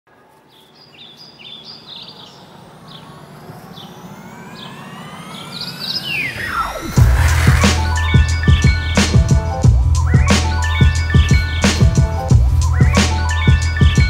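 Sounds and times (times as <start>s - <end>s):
fast downward sweep: 1.8s - 9.6s
rising synth sweep: 1.8s - 10.6s
music: 6.4s - 14.0s.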